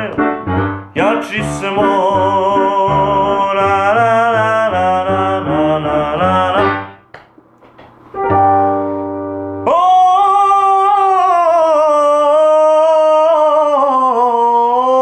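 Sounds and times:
keyboard chord: 8.1 - 9.8.

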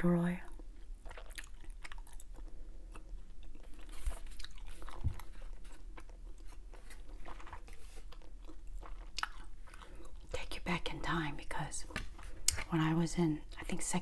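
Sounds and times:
gum chewing clicks: 0.5 - 10.4
soft low thumps: 4.9 - 5.4.

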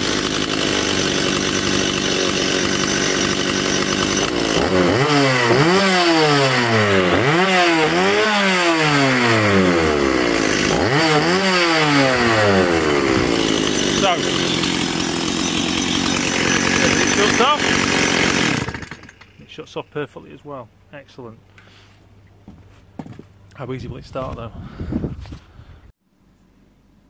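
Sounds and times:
chainsaw idling and revving: 0.0 - 19.6.

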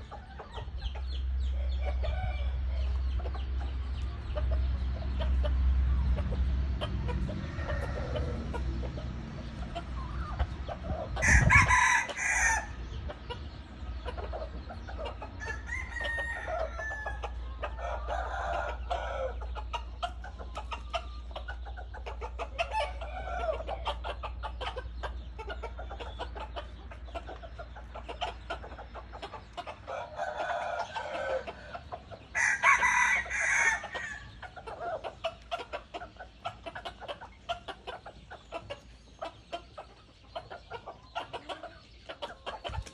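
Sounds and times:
roosters clucking and calling: 0.0 - 42.9
rooster crowing: 11.2 - 12.8, 32.4 - 34.2.

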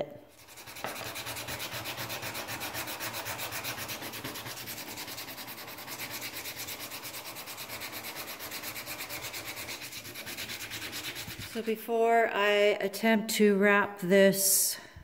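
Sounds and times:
sandpaper rubbing on wood: 0.3 - 11.8.

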